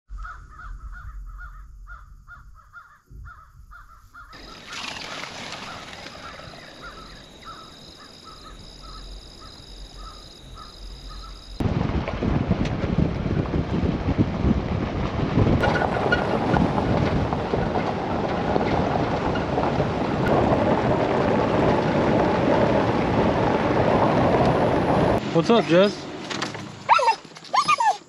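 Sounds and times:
birds harsh calls: 0.2s - 11.5s.

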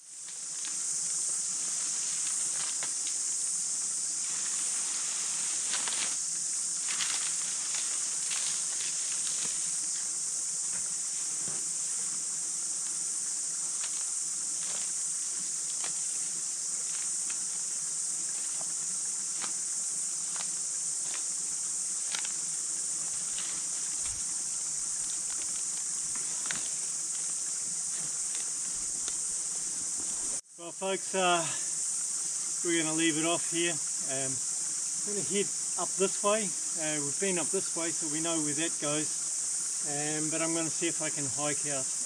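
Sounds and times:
high-pitched insect chorus: 0.0s - 42.0s
camp gear clicking and rustling: 22.0s - 22.4s, 23.0s - 27.3s.

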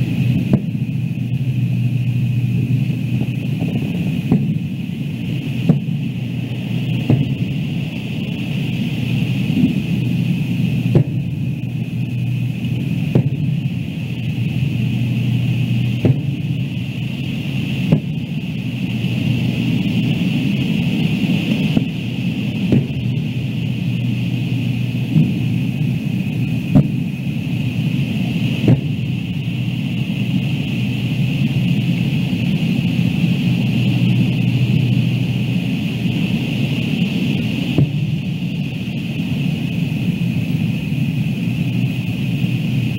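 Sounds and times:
low rumble and hiss: 0.0s - 42.9s
distant fireworks bursting: 0.2s - 20.0s, 21.6s - 27.8s.

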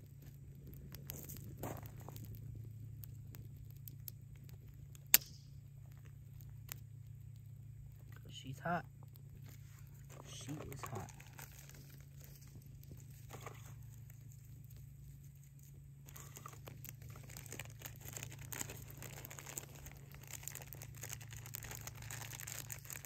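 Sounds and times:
dry material tearing and crumpling: 0.0s - 5.2s, 9.3s - 23.0s
low hum: 0.0s - 23.0s.

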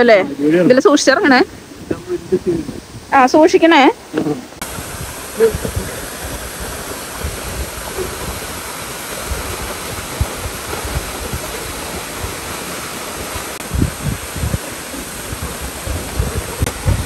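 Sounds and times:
waterfall rushing into pool: 0.0s - 17.0s
low rumbles: 4.4s - 17.0s.

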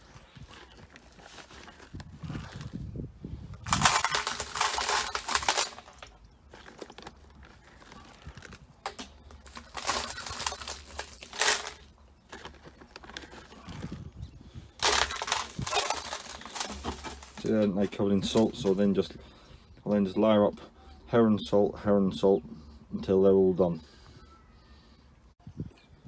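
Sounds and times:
rock salt scattering: 3.6s - 6.9s, 9.3s - 12.6s, 14.8s - 18.6s.

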